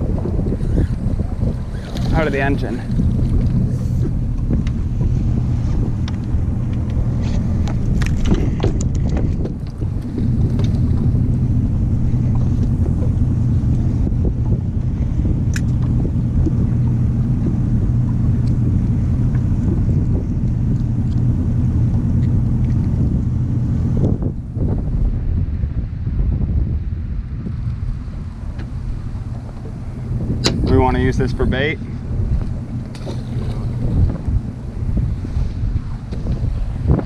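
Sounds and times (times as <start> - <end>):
outboard motor idling: 0.0 - 26.5, 27.1 - 37.0
knocks and clicks of gear: 5.8 - 11.4, 15.5 - 16.6, 28.6 - 30.9.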